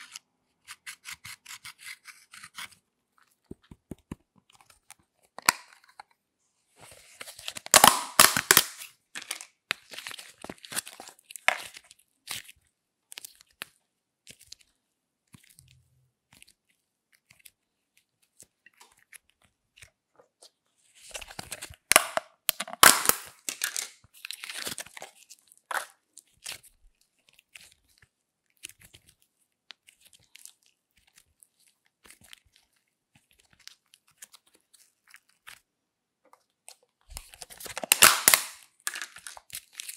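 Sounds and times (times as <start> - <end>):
slime crackling and tearing: 37.2 - 39.9.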